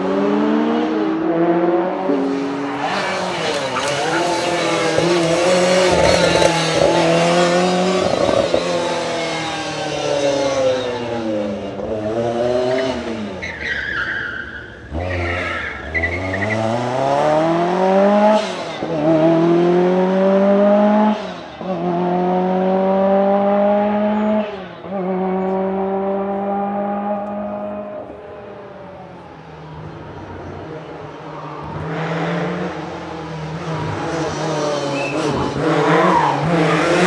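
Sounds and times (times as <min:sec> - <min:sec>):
car engine revving hard: 0:00.0 - 0:13.4, 0:14.9 - 0:28.2, 0:31.6 - 0:37.0
tyres squealing: 0:02.8 - 0:07.4, 0:13.4 - 0:16.7.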